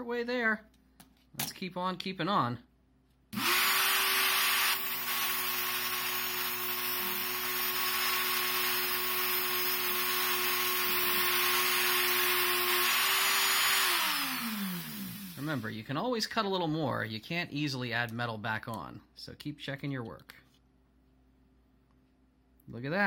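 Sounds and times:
cutoff wheel grinding metal: 3.4 - 15.6
rotary tool whining: 3.4 - 15.6.

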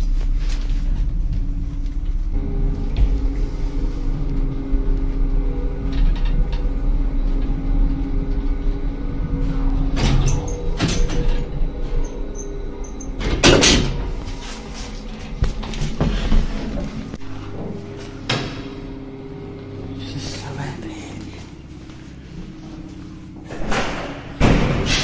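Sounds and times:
lift motor humming: 0.0 - 25.0
lift car rattling: 0.6 - 20.2.

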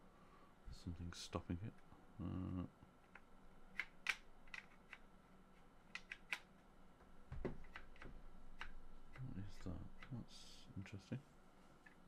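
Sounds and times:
dull knock: 7.3 - 7.6.

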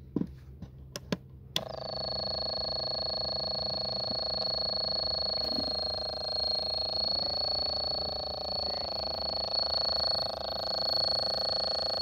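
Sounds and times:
buzzing synthesizer drone: 1.6 - 12.0
high thin tone: 4.9 - 12.0.

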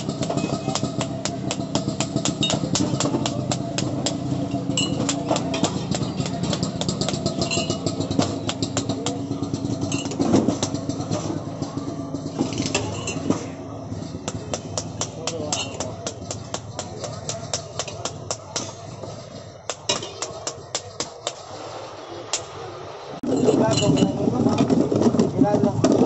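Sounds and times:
small engine droning and ticking: 0.0 - 19.8.

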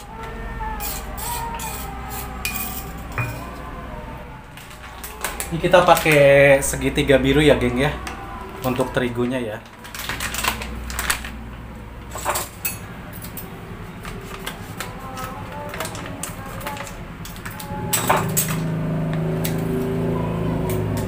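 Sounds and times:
plastic wrapper crinkling: 4.5 - 6.3, 8.6 - 11.6, 14.0 - 17.7
scissors cutting plastic: 4.6 - 6.3, 9.6 - 11.3, 14.0 - 20.0.

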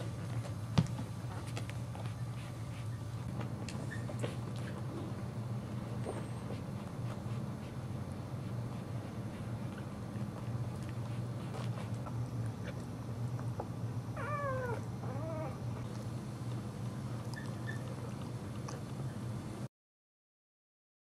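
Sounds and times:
dog whimpering: 3.8 - 4.3, 14.1 - 16.0, 17.3 - 18.2.

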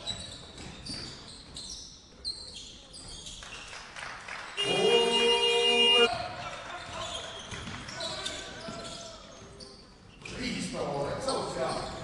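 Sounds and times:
shoes squeaking on wooden floor: 0.0 - 3.8, 6.8 - 10.4, 11.2 - 12.0
ball bouncing: 0.4 - 1.6, 7.4 - 7.9
game horn: 4.6 - 6.1.

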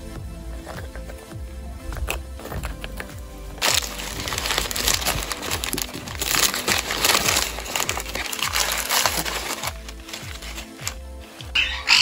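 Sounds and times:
packing paper rustling: 2.4 - 11.8.

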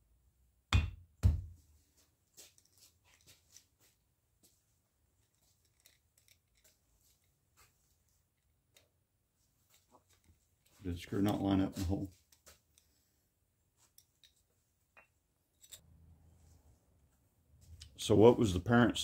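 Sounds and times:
screwdriver clicking and scraping: 5.2 - 7.3, 13.9 - 14.4, 15.5 - 15.8.

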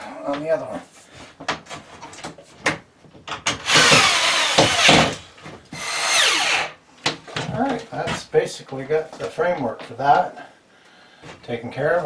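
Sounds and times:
power drill driving screws: 3.6 - 5.2, 5.8 - 6.8.

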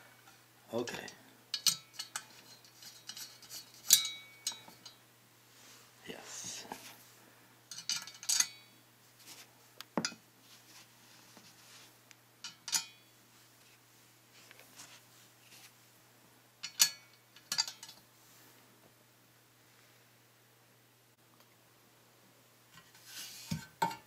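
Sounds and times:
metallic clinks of stand: 1.5 - 5.0, 7.7 - 8.7, 12.4 - 13.0, 16.6 - 18.0.

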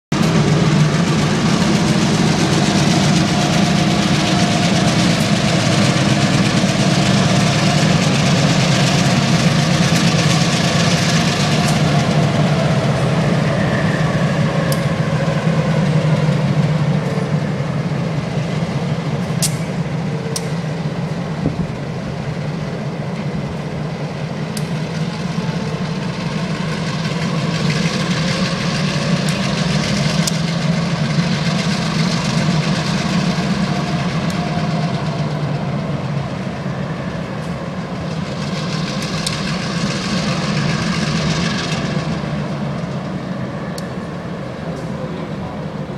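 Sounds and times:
locomotive engine hum: 0.1 - 45.9
wheels rumbling on rails: 0.1 - 45.9.

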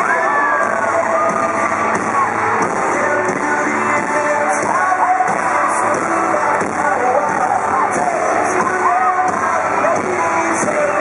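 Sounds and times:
drums: 0.0 - 11.0
live pop-rock band: 0.0 - 11.0
people singing: 2.6 - 11.0.

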